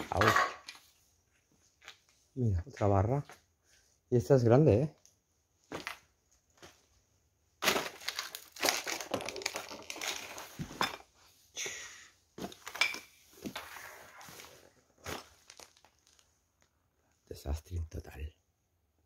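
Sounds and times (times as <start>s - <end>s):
footsteps crunching over debris: 14.3s - 16.2s.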